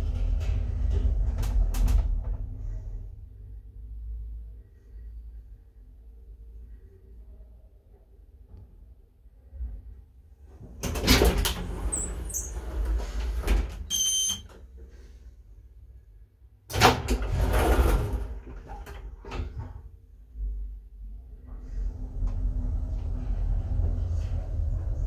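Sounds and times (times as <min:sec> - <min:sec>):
elevator doors sliding: 0:00.0 - 0:03.2, 0:10.6 - 0:14.5, 0:16.7 - 0:19.8, 0:21.4 - 0:25.0
door squeaks: 0:11.9 - 0:12.8, 0:13.8 - 0:14.5
short electronic beep: 0:13.9 - 0:14.4.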